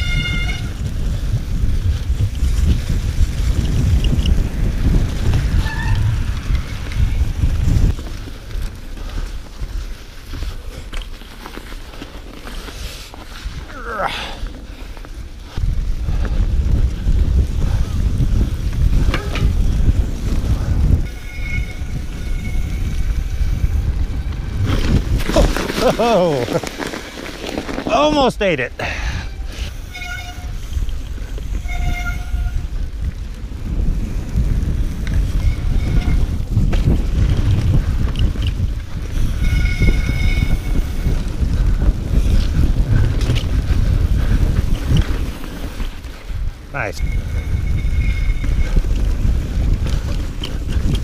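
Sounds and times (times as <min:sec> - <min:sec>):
wind rushing over microphone: 0:00.0 - 0:10.9, 0:12.6 - 0:51.0
bike rolling over snow rumble: 0:00.0 - 0:51.0
faint thin squeal: 0:21.1 - 0:23.3, 0:46.9 - 0:48.8.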